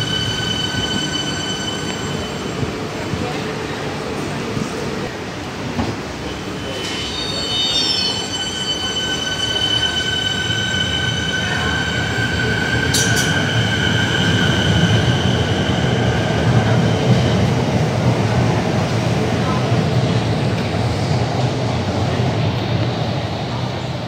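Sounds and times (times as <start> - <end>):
train wheels squealing: 0.0 - 3.0, 6.2 - 17.3.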